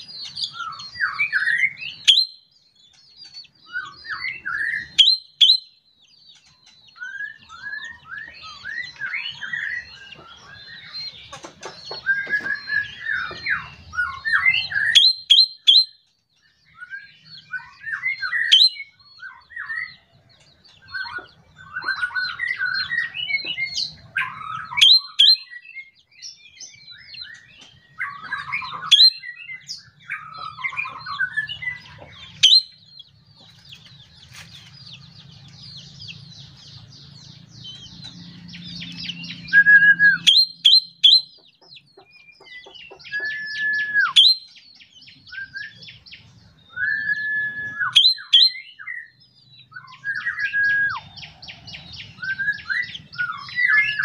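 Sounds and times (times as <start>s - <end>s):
bird singing varied song: 0.0s - 54.0s.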